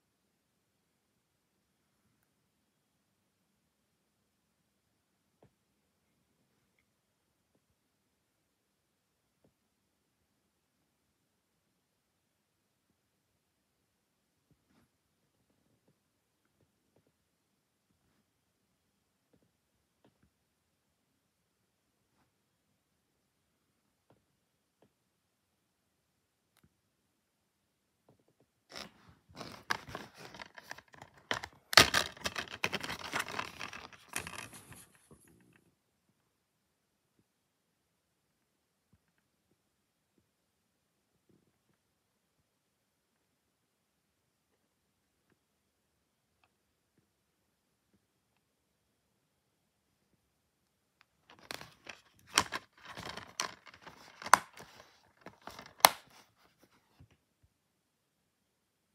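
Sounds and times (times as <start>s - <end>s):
plastic case rustling and scraping: 28.7s - 35.3s, 51.3s - 56.8s
plastic case clicks and snaps: 29.4s - 34.5s, 51.3s - 56.1s.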